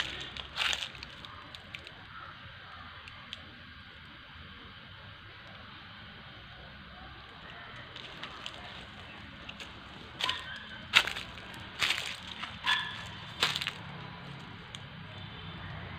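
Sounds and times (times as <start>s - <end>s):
leaves rustling and crackling: 0.0s - 2.2s, 7.3s - 14.8s.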